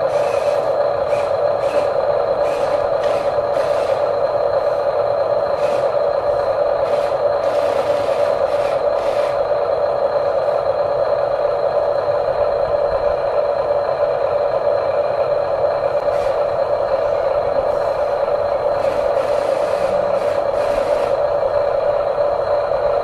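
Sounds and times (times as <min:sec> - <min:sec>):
small electric motors whining: 0:00.0 - 0:04.8, 0:05.4 - 0:09.5, 0:16.0 - 0:21.3.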